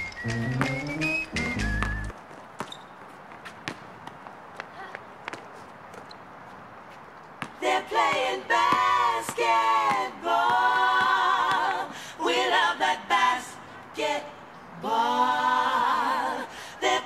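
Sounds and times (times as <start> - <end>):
person singing unaccompanied: 7.6 - 17.0
singer breathing: 11.8 - 12.2, 16.5 - 16.8.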